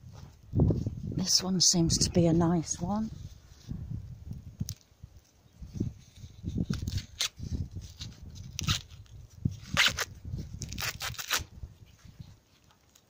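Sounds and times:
corn husks tearing: 4.6s - 11.5s.

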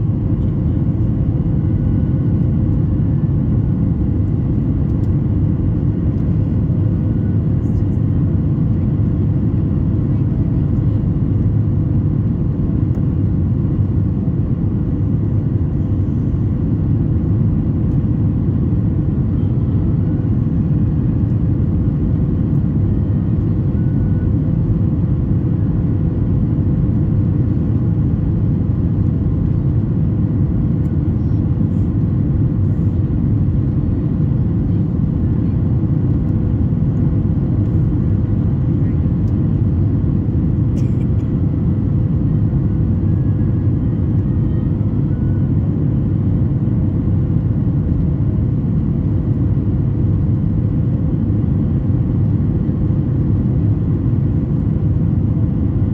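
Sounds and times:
airplane cabin rumble: 0.0s - 55.9s.

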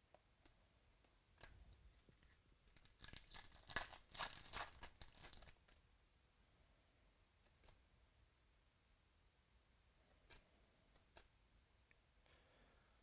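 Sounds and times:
plastic wrapper tearing and crinkling: 2.7s - 5.8s.

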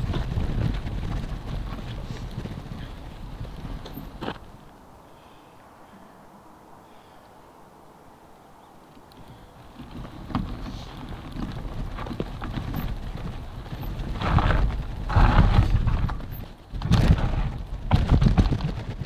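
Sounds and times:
bike rattling clicks and knocks: 0.0s - 4.7s, 9.0s - 19.0s
tyres crunching on stony trail: 0.0s - 5.3s, 9.0s - 19.0s.

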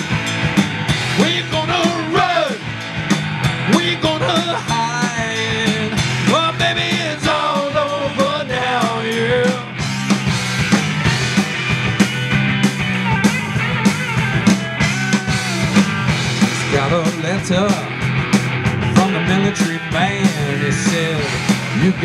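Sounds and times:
drum kit with cymbals: 0.0s - 22.0s
electric bass: 0.0s - 22.0s
electric guitars: 0.0s - 22.0s.

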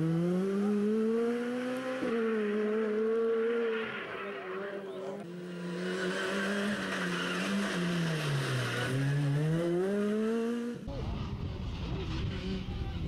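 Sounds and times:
rally car engine revving: 0.0s - 13.0s
wind rumble on microphone: 10.9s - 13.0s.

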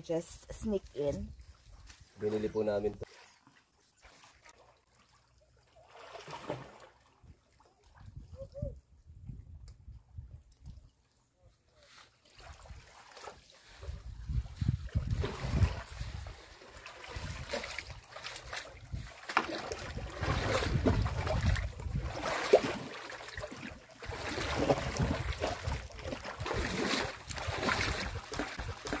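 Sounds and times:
small waves lapping: 0.6s - 8.2s, 11.8s - 29.0s
wind buffeting microphone: 8.0s - 10.8s, 13.8s - 16.3s, 19.9s - 22.2s.

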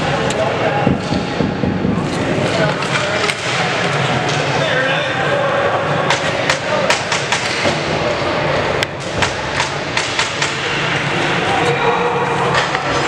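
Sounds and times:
floor hockey sticks clacking: 0.2s - 4.6s, 9.0s - 10.9s.

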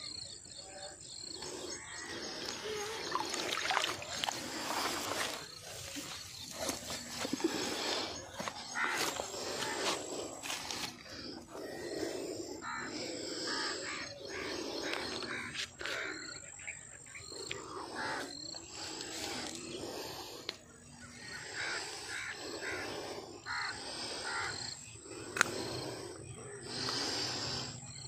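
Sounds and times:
birds calling: 0.0s - 28.0s.

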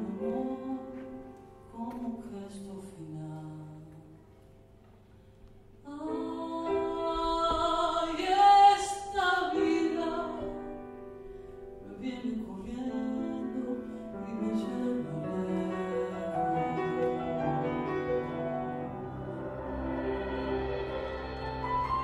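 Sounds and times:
woman singing: 0.0s - 4.2s, 5.9s - 10.8s, 11.8s - 17.2s
piano: 0.0s - 22.0s.

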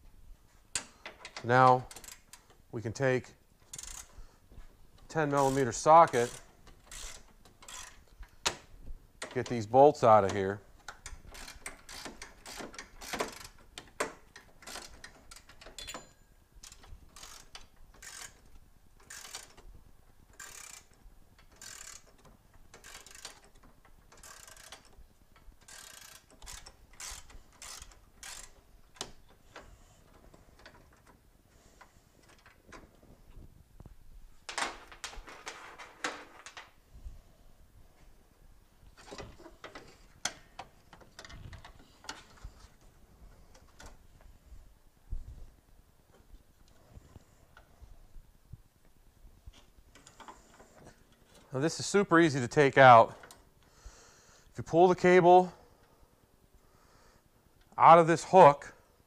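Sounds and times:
socket ratchet clicking: 3.6s - 4.2s, 5.2s - 9.5s, 10.8s - 16.0s, 16.6s - 19.7s, 20.3s - 30.0s.

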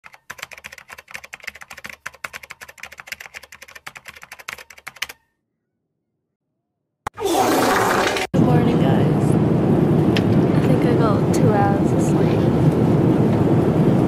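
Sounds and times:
computer keyboard typing: 0.0s - 5.2s.

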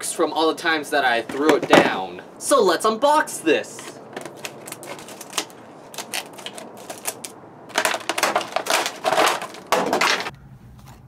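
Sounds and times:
plastic packaging crackling: 3.8s - 10.3s
scissors cutting plastic: 3.8s - 10.3s.

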